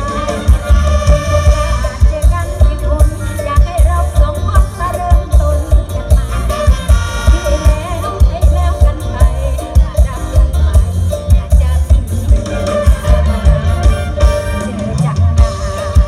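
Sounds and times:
amplified live band music: 0.0s - 16.0s
heavy bass drum beat: 0.0s - 16.0s.

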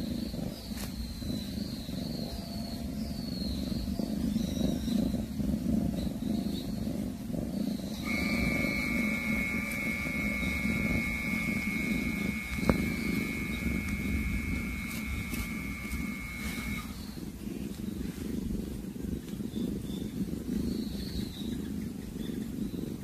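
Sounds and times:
faint high chirps: 7.9s - 17.1s
steady high tone: 8.0s - 17.0s.

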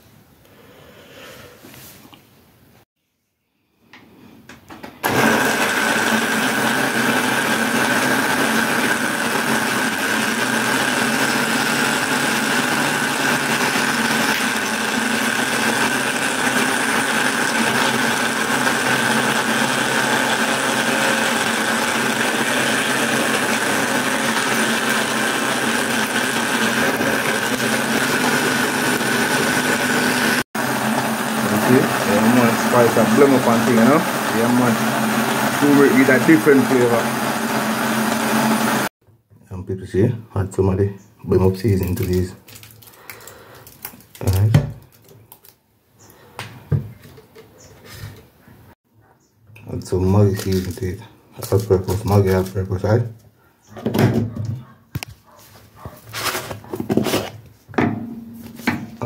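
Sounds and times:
blender motor running: 5.0s - 38.9s.

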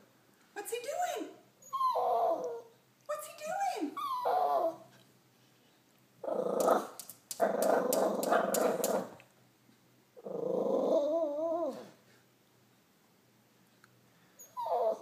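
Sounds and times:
small dog growling: 1.8s - 2.7s, 4.0s - 4.8s, 6.2s - 9.2s, 10.2s - 12.0s, 14.6s - 15.0s.

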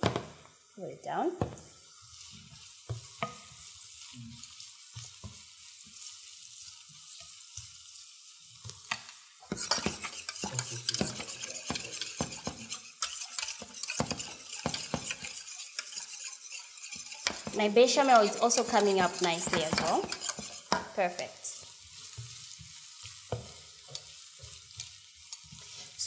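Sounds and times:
onions sizzling in a frying pan: 0.0s - 26.0s
spatula knocking: 9.5s - 21.0s
metal utensil scraping a saucepan: 9.5s - 21.2s.

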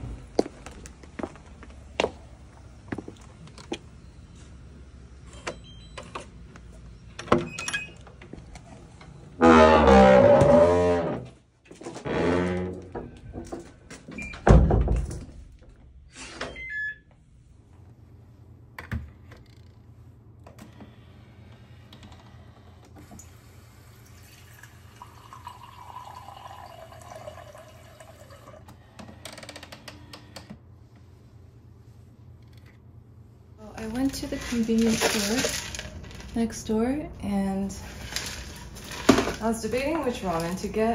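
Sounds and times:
wooden door creaking: 9.4s - 15.3s
door closing with heavy thunk: 14.2s - 15.3s
hot water pouring into mug: 24.0s - 28.6s.

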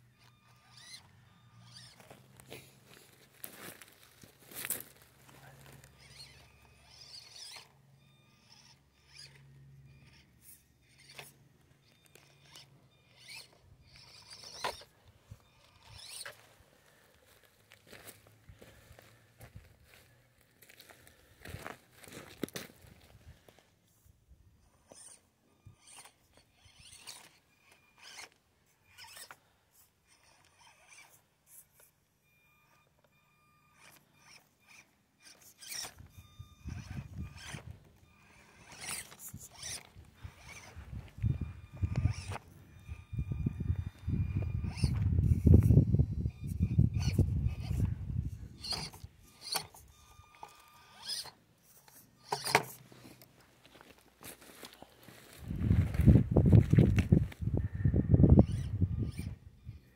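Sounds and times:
small electric motor whirring: 0.0s - 20.2s, 21.6s - 59.9s
thin steady whine: 0.0s - 59.9s
tyres scraping on stone: 38.6s - 40.8s.

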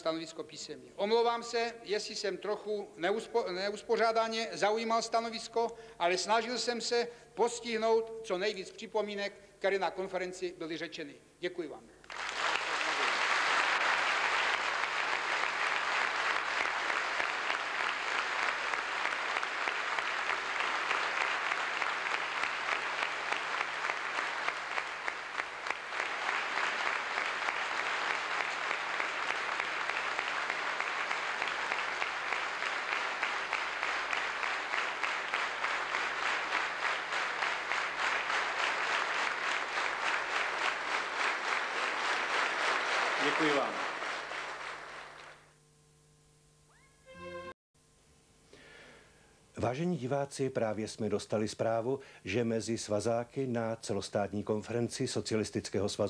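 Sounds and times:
audience applauding: 12.0s - 45.5s.

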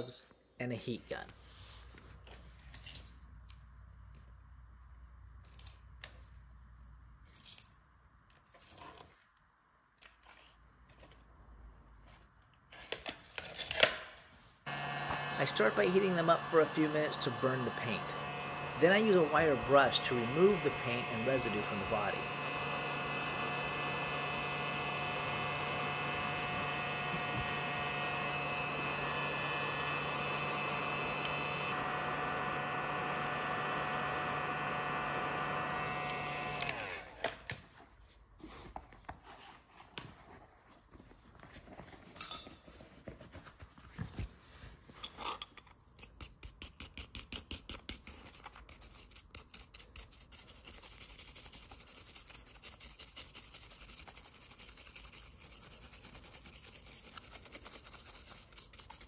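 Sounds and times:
heat gun blower humming: 14.7s - 37.3s
wire brush scrubbing metal: 15.3s - 29.9s, 46.5s - 59.0s.

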